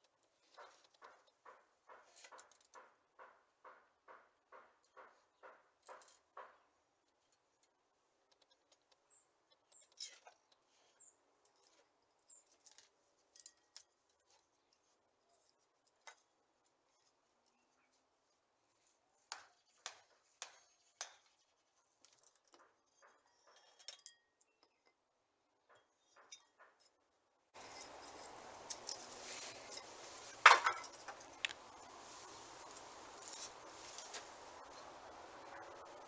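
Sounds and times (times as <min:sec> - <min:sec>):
metal taps and clinks: 0:25.6 - 0:27.0.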